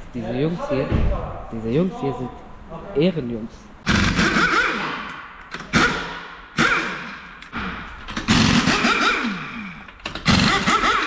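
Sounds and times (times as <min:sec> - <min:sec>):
pneumatic impact wrench bursts: 0:03.8 - 0:11.0.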